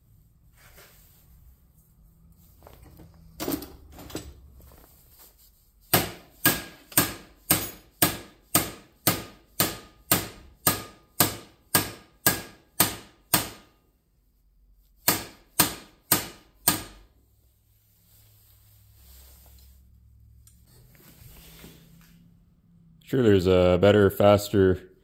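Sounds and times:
hammer striking steel bracket: 5.9s - 13.7s, 15.0s - 17.0s.

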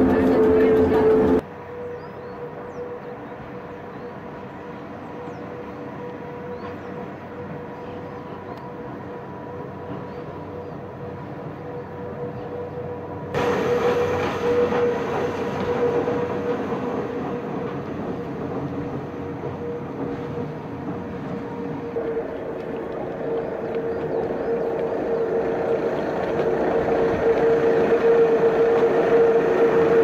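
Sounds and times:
electric railcar running hum: 0.0s - 30.0s.

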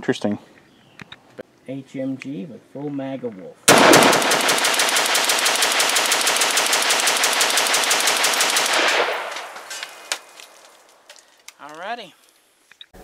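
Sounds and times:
rifle shots: 3.7s - 10.7s.

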